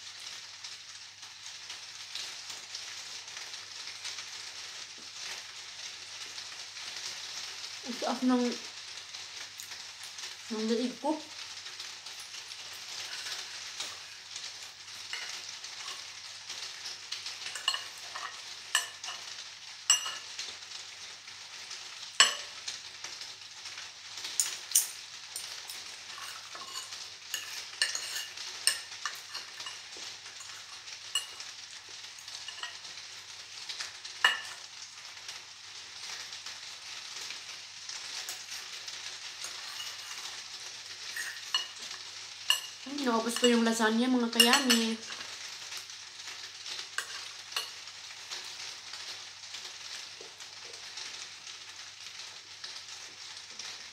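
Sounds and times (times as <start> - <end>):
steady hiss: 0.0 - 53.9
cutlery clicking on a plate: 17.4 - 19.2, 19.9 - 20.3, 22.2 - 22.5, 24.4 - 29.8, 41.2 - 41.8, 42.5 - 42.7.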